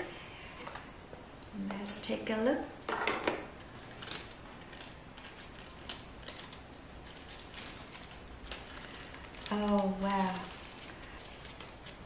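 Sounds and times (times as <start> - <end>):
paper wrapping rustling: 3.6 - 12.0.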